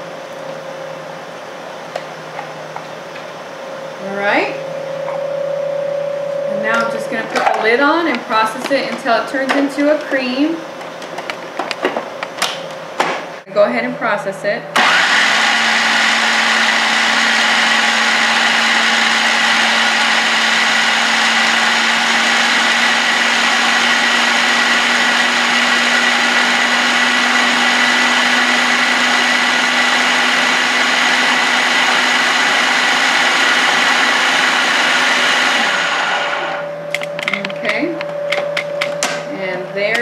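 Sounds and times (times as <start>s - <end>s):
food processor motor whining: 14.8s - 36.6s.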